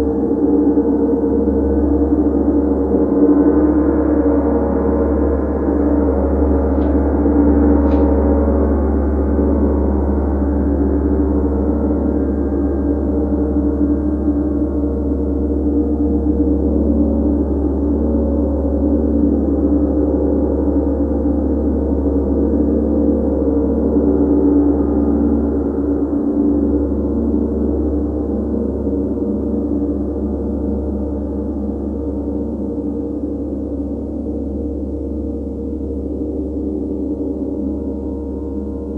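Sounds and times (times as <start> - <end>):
gong played with soft mallet: 4.7 - 11.2.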